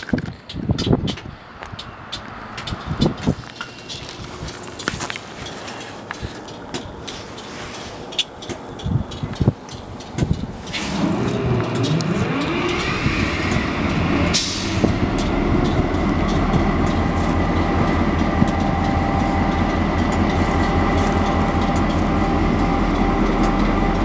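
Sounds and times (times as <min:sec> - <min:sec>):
diesel locomotive engines starting: 0:00.8 - 0:24.0
engine idle rumble: 0:02.6 - 0:24.0.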